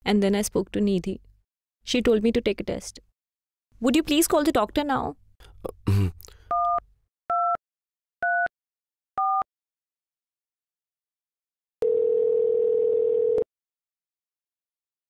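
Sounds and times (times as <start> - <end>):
phone keypad beeps: 9.2 - 9.4
low phone tone: 11.8 - 13.5.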